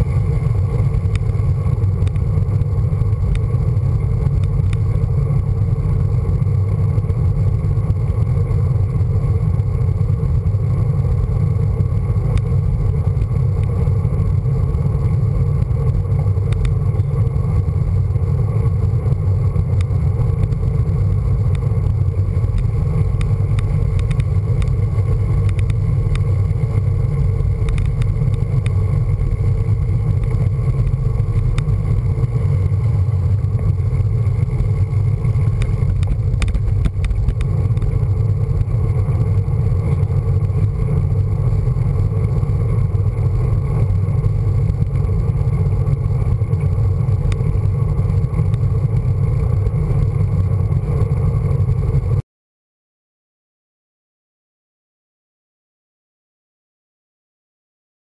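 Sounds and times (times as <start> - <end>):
wind buffeting microphone: 9.0 - 50.6.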